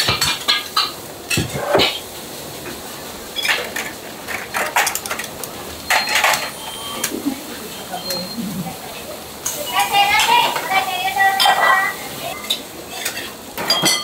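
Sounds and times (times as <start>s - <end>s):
bowls and utensils clinking: 3.4s - 8.8s, 12.4s - 14.0s.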